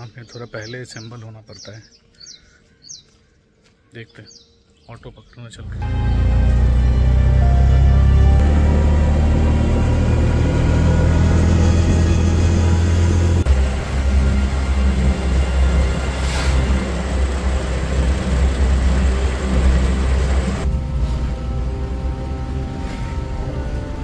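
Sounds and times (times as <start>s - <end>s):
road rumble: 5.5s - 24.0s
auto-rickshaw engine running: 5.6s - 24.0s
droning background music: 5.6s - 24.0s.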